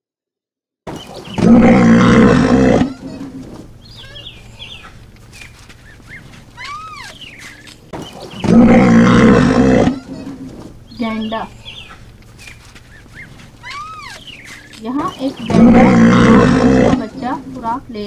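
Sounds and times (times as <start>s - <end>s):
large animal roaring: 1.4s - 3.4s, 8.4s - 10.3s, 15.4s - 17.2s
faint bird chirps: 3.8s - 8.6s, 10.9s - 15.8s.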